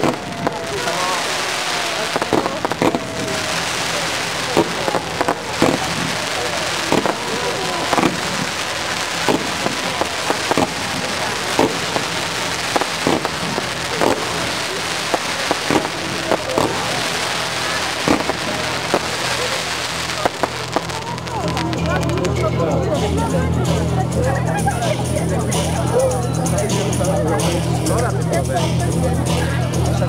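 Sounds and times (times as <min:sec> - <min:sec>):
fireworks bangs: 0:00.0 - 0:22.4
fireworks crackling hiss: 0:00.0 - 0:22.4.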